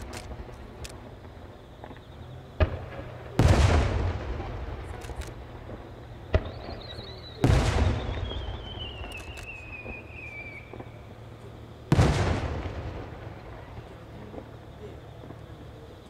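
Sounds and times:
firework launch crack: 0:00.0 - 0:11.2, 0:11.9 - 0:15.4
firework shell bursts booming: 0:02.6 - 0:05.7, 0:06.3 - 0:11.0
whistling rising firework shell: 0:06.4 - 0:11.0.

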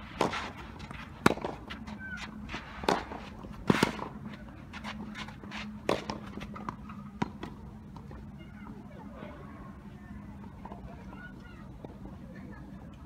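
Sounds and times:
tennis ball struck by rackets: 0:00.1 - 0:04.2, 0:05.1 - 0:07.6.

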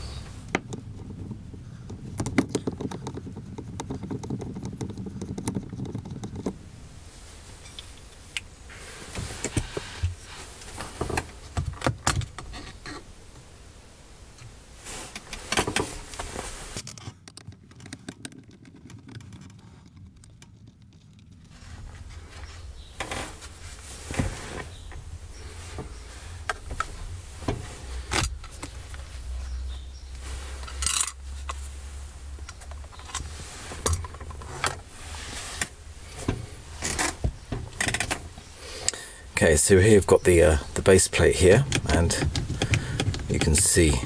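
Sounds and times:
rattles and clicks of loose parts: 0:00.4 - 0:06.6, 0:15.1 - 0:22.0, 0:30.6 - 0:31.6, 0:32.4 - 0:34.8, 0:35.6 - 0:39.0, 0:40.8 - 0:44.0.

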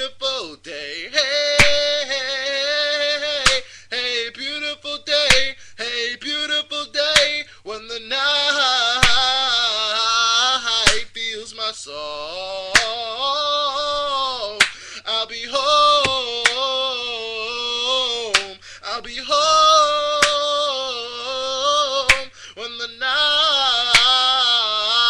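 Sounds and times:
man singing wordless notes: 0:00.0 - 0:25.0
sharp snaps keeping beat: 0:01.4 - 0:02.2, 0:02.8 - 0:03.8, 0:04.4 - 0:05.6, 0:06.3 - 0:07.5, 0:08.4 - 0:09.6, 0:10.7 - 0:11.3, 0:12.7 - 0:13.2, 0:13.8 - 0:15.0, 0:15.6 - 0:16.9, 0:17.6 - 0:20.8, 0:21.4 - 0:22.4, 0:23.3 - 0:24.6.

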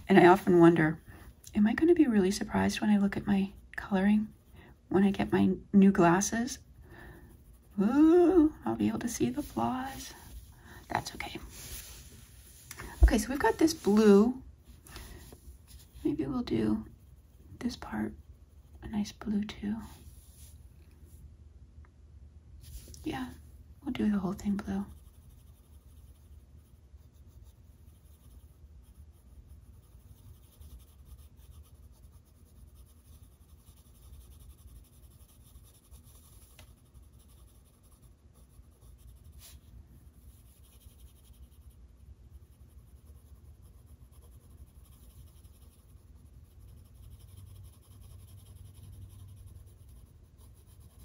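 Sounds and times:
coloring tool scratching on paper: 0:24.2 - 0:51.0.

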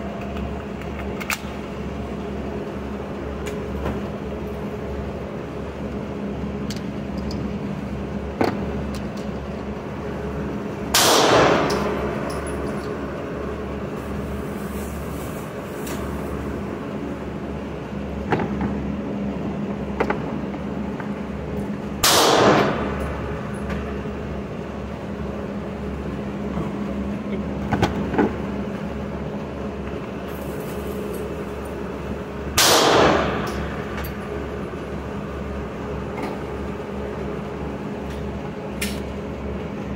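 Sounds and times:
ventilation hum: 0:00.0 - 0:39.9
reverberant gunshots: 0:10.9 - 0:12.2, 0:22.0 - 0:23.0, 0:32.6 - 0:33.8.

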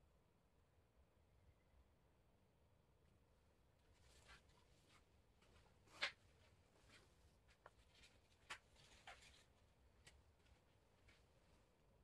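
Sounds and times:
faint taps and rustles: 0:03.9 - 0:11.6.

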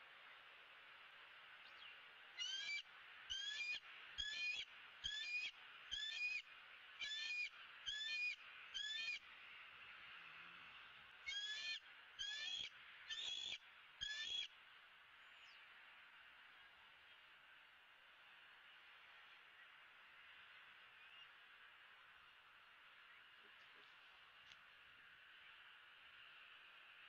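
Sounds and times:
bird short high calls: 0:02.4 - 0:06.4, 0:11.3 - 0:14.5.

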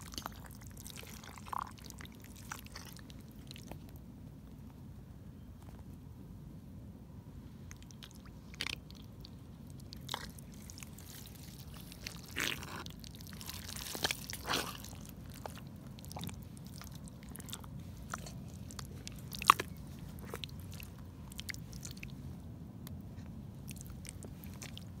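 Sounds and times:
boots squelching in wet mud: 0:10.0 - 0:22.0.

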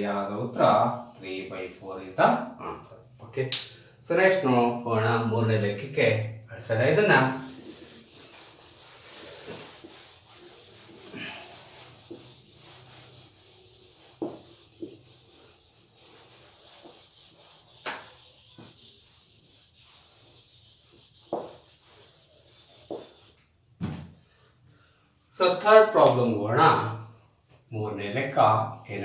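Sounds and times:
eraser rubbing on whiteboard: 0:07.2 - 0:23.5.

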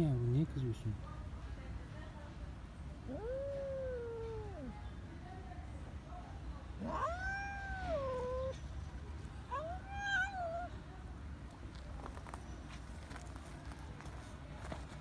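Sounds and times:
cat yowling angrily: 0:06.8 - 0:08.6, 0:09.5 - 0:10.7.

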